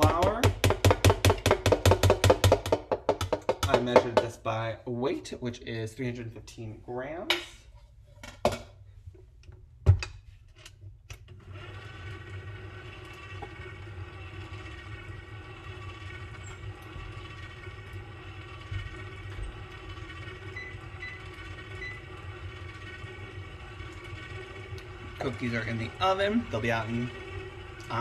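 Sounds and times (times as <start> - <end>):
knocks and thump: 0.0 - 4.4
stand mixer motor humming: 11.4 - 28.0.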